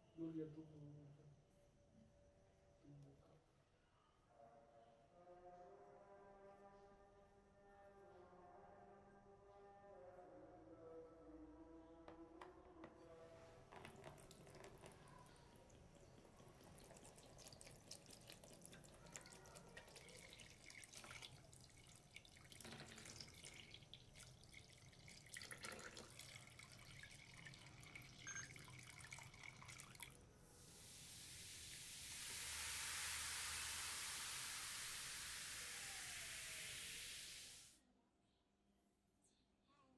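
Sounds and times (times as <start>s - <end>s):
chemical bath fizzing hiss: 13.7s - 37.8s
liquid dripping: 13.8s - 37.4s
liquid pouring and splashing: 13.8s - 37.7s.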